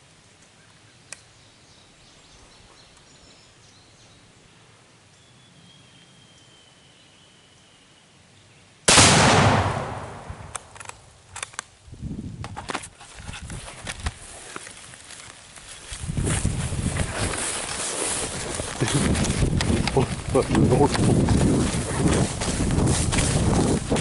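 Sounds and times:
loud explosion blast: 0:08.9 - 0:10.5
sharp clicks: 0:10.0 - 0:11.7.

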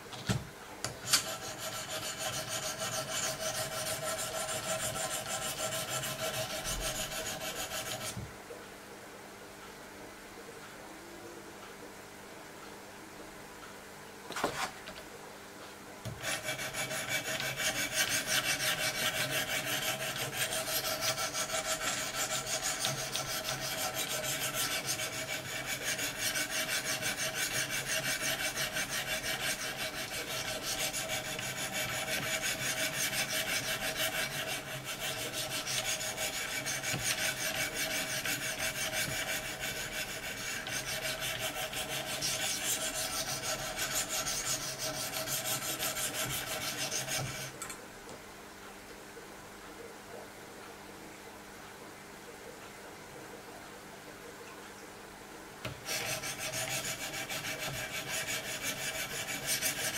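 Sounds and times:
stone scraping knife blade: 0:16.3 - 0:47.5, 0:55.8 - 0:59.9.

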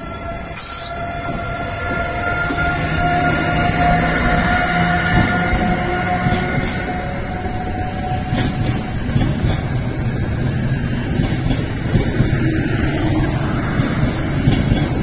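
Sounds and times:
electric locomotive whine: 0:00.0 - 0:15.0
wheel-on-rail noise: 0:00.0 - 0:15.0.

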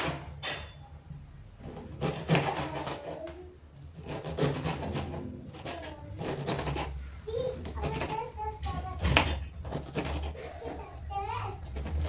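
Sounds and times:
knife chopping on plastic board: 0:01.6 - 0:03.3, 0:04.0 - 0:06.9, 0:07.6 - 0:10.8.

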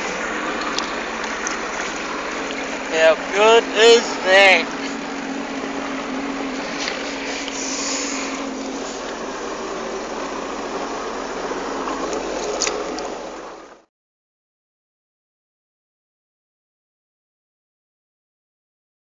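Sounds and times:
jet ski engine idling: 0:00.0 - 0:13.9
water around hull: 0:00.0 - 0:13.9.

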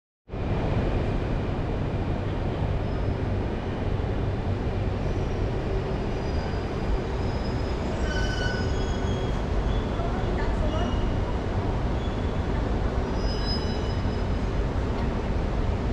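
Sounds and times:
train rumbling: 0:00.3 - 0:15.9
train wheel squeal: 0:02.8 - 0:03.2, 0:05.0 - 0:11.3, 0:11.9 - 0:12.4, 0:13.0 - 0:14.5.

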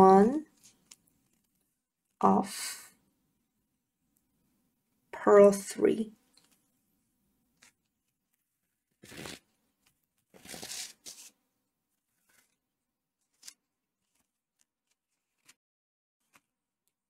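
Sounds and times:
yarn rustling: 0:09.0 - 0:09.6, 0:10.2 - 0:11.4.

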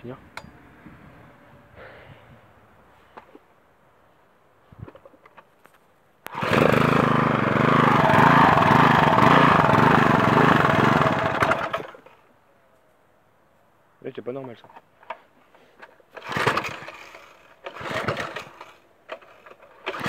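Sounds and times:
lawnmower engine running: 0:06.3 - 0:12.2, 0:16.1 - 0:20.0.

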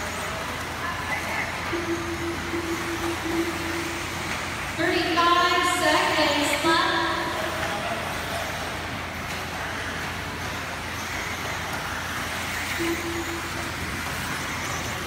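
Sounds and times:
rc cars racing motors and tyres: 0:07.2 - 0:15.0.

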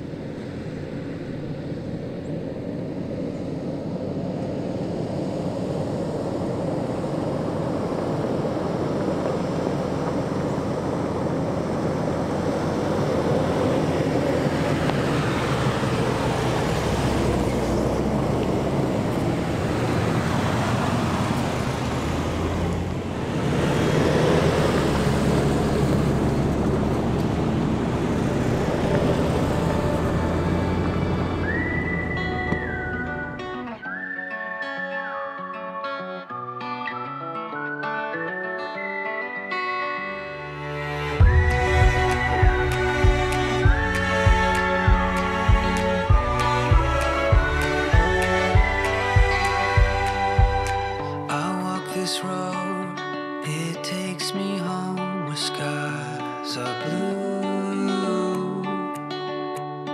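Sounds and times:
vehicle engines passing: 0:00.0 - 0:33.9, 0:40.1 - 0:51.4.

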